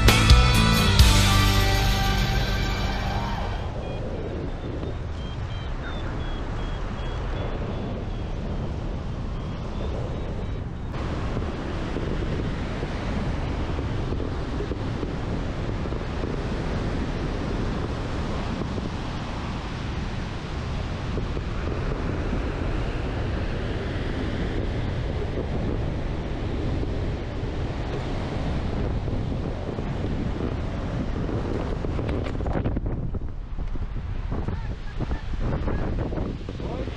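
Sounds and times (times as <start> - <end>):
wind rushing over microphone: 0.0 - 36.9.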